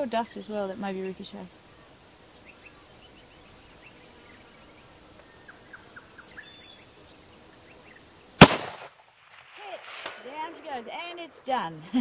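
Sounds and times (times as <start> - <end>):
faint bird chirps: 0.0 - 8.4
rifle shot: 8.4 - 10.8.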